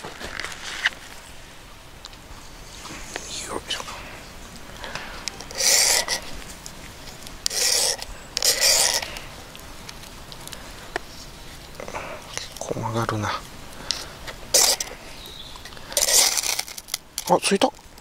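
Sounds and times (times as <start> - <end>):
striker scraping fire-starter rod: 4.8 - 9.3, 13.9 - 15.0, 15.6 - 17.6.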